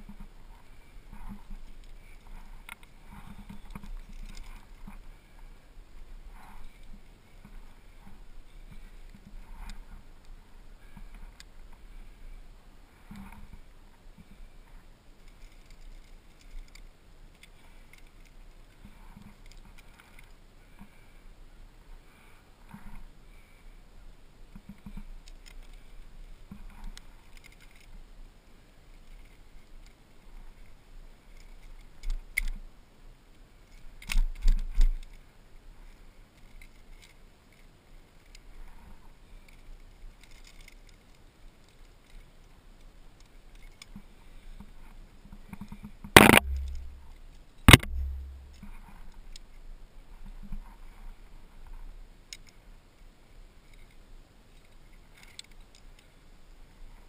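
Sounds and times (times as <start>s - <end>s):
climbing gear clinking: 0.5s - 5.0s, 39.4s - 42.3s
sharp loud knocks: 46.2s - 47.0s, 47.7s - 48.6s
short low rumble: 46.2s - 48.7s.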